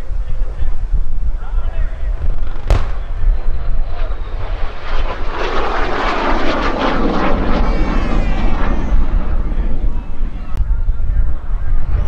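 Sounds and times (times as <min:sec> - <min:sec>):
jet fighter roaring past: 0:02.3 - 0:10.6.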